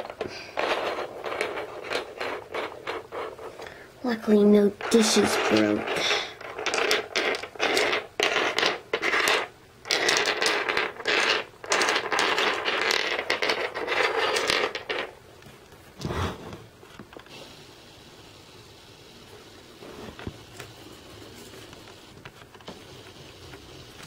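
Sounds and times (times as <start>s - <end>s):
toy dishes clattering on wood: 4.8s - 15.1s.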